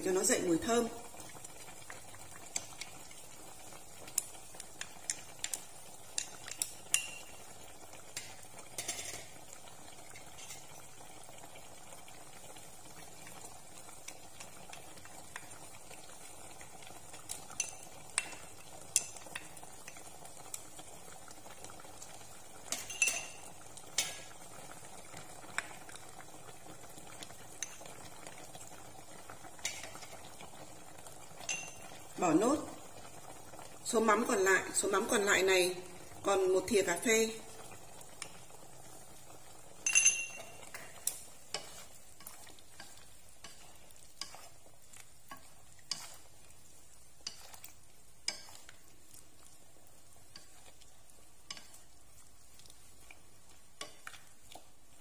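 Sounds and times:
faint simmering bubbling: 0:00.0 - 0:55.0
utensil tapping bowl and pot: 0:06.1 - 0:07.3, 0:22.7 - 0:23.4, 0:31.4 - 0:31.8, 0:39.8 - 0:41.8.

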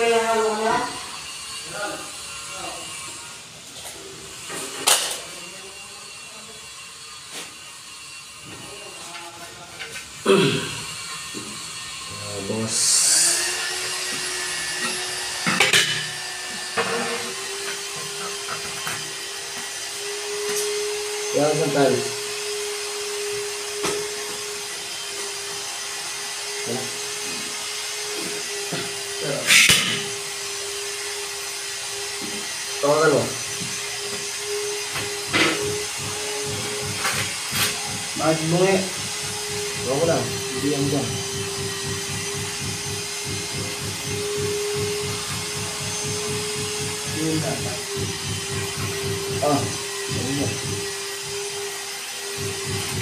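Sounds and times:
tile scraping on floor: 0:16.8 - 0:17.3
tile vibrator humming: 0:33.6 - 0:53.0
tile knocking: 0:41.2 - 0:47.2.

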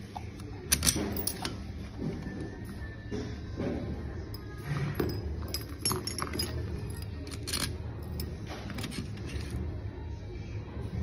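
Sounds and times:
small metal parts clinking: 0:00.7 - 0:01.7, 0:04.3 - 0:09.6.

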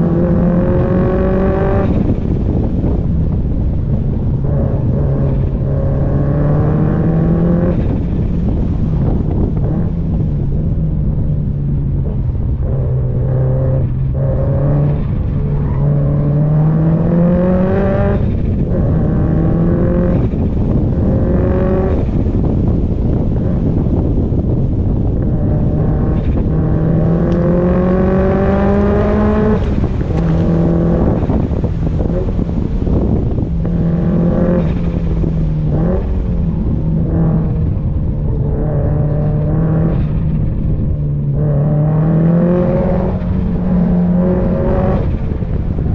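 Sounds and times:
car engine revving hard: 0:00.0 - 0:02.2, 0:12.7 - 0:22.6, 0:25.2 - 0:36.4, 0:41.3 - 0:45.8.

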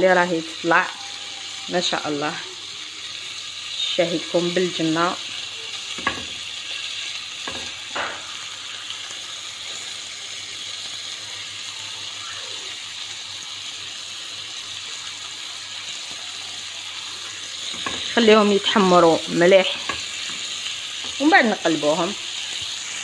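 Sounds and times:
chicken sizzling in a frying pan: 0:00.0 - 0:23.0
skewers knocking on pan: 0:05.9 - 0:06.5, 0:07.4 - 0:08.4, 0:17.6 - 0:18.9, 0:19.6 - 0:21.4.

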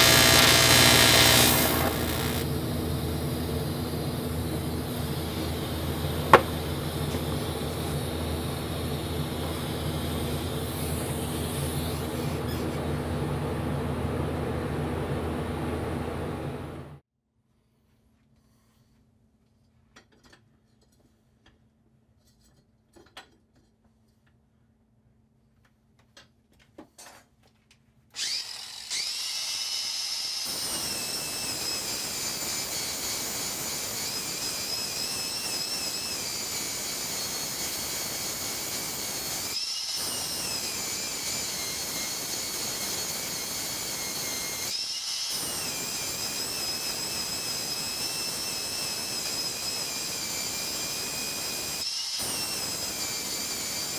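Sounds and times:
angle grinder grinding metal: 0:00.0 - 0:02.6, 0:04.4 - 0:12.9, 0:28.2 - 0:53.9.

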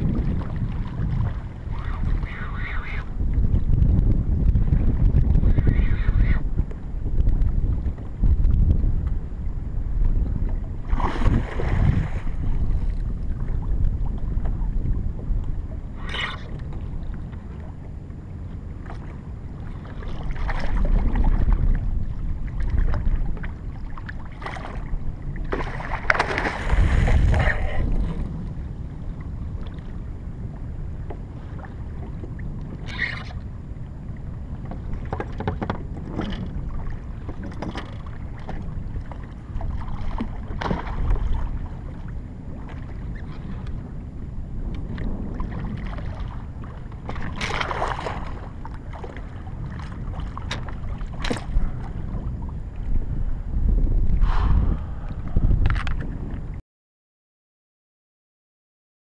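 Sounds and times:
water against kayak: 0:00.0 - 0:56.6
wind buffeting microphone: 0:00.0 - 0:56.6
water splashing: 0:10.9 - 0:12.5, 0:24.0 - 0:28.1.

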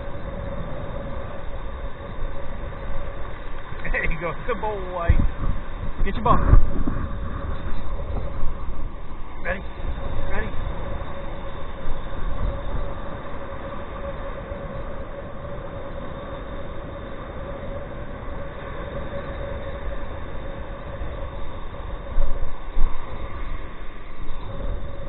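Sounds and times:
faint steady hum: 0:00.0 - 0:25.0
wind buffeting microphone: 0:00.0 - 0:25.0
surf breaking on beach: 0:06.0 - 0:08.5.

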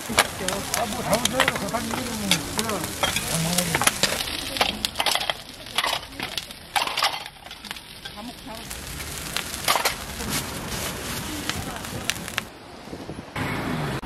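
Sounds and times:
pancakes sizzling: 0:00.0 - 0:12.5
metal lids clinking on griddle: 0:00.1 - 0:08.4, 0:09.6 - 0:10.0.

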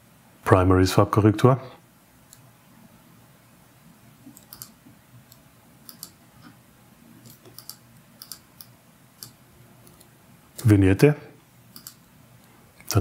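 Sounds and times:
computer mouse clicking: 0:04.3 - 0:06.5, 0:07.2 - 0:10.7, 0:11.7 - 0:13.0.

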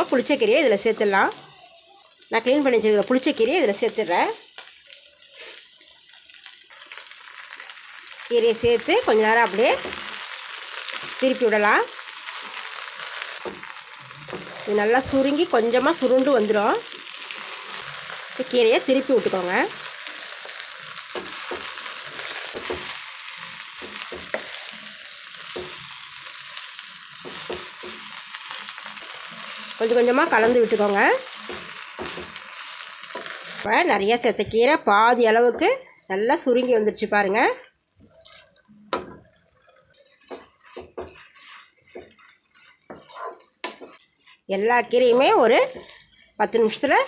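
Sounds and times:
leaves sizzling in hot oil: 0:00.0 - 0:47.0
wooden spatula scraping pan: 0:14.2 - 0:18.1, 0:29.0 - 0:33.8, 0:39.7 - 0:46.9.

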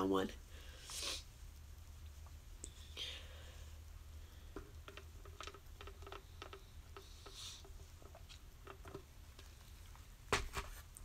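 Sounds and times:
soft hiss: 0:00.0 - 0:11.0.

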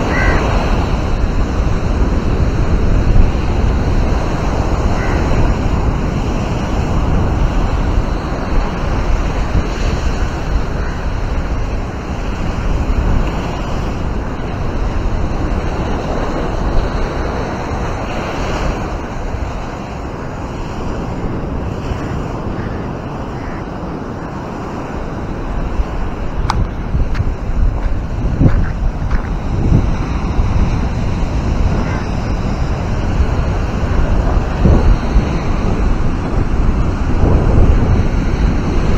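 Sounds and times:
surf washing onto beach: 0:00.0 - 0:38.9
wind buffeting microphone: 0:00.0 - 0:38.9.

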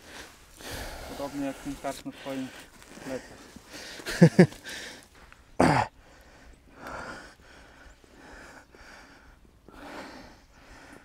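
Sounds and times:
soft breathing: 0:00.0 - 0:11.0
man laughing: 0:03.0 - 0:05.0.

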